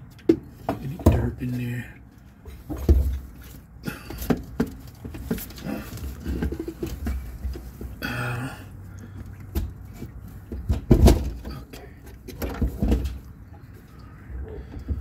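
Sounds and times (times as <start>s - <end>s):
plastic scraping against tank rim: 2.2s - 8.0s.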